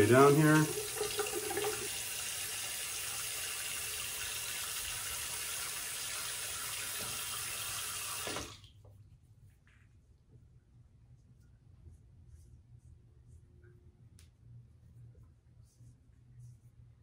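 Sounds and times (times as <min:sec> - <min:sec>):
sink tap running: 0:00.0 - 0:08.7.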